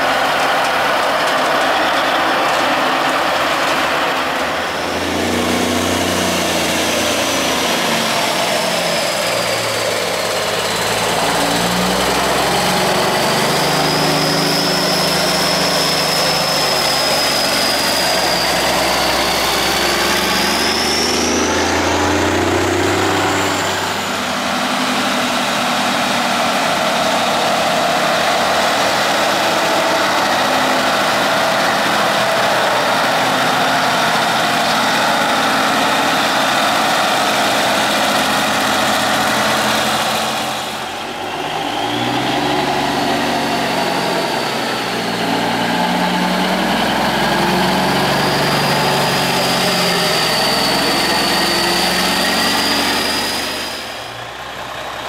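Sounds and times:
diesel truck engines passing: 0.0s - 55.0s
high whistle: 12.3s - 21.8s, 48.8s - 54.2s.

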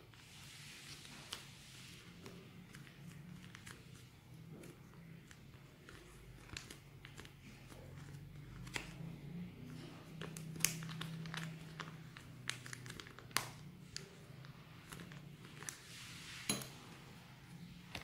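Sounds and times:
plastic sachet crinkling: 9.7s - 15.9s.

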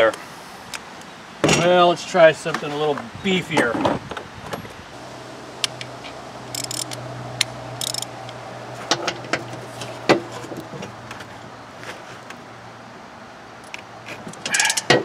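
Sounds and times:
steady low hum: 5.0s - 11.1s
ratchet clicking: 6.5s - 8.4s.

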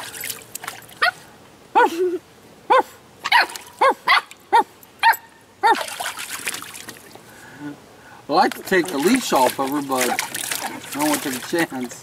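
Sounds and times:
water splashing in plastic pool: 0.0s - 1.1s, 5.6s - 7.3s, 8.3s - 12.0s
puppy barking: 2.7s - 5.8s.

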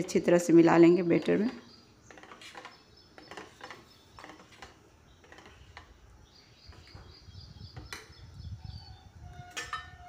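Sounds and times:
metal spoon scraping a bowl: 2.1s - 6.0s.

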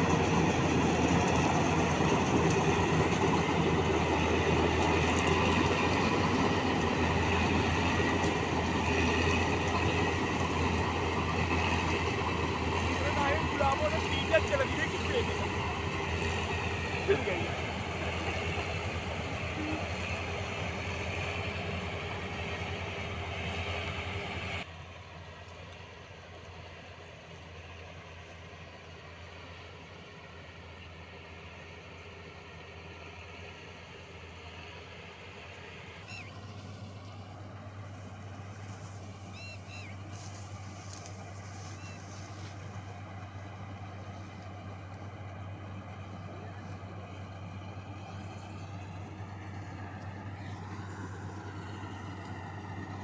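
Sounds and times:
combine harvester engine and threshing: 0.0s - 53.0s.

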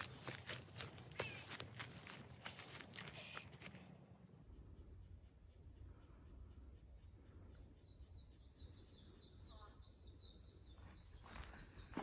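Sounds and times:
footsteps in undergrowth: 0.0s - 3.9s, 10.8s - 12.0s
songbird chirping: 0.0s - 12.0s.

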